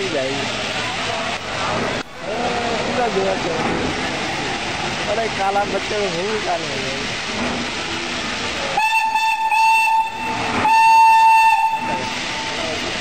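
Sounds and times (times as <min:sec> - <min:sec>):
steady background noise: 0:00.0 - 0:13.0
steam locomotive whistle: 0:08.7 - 0:12.6.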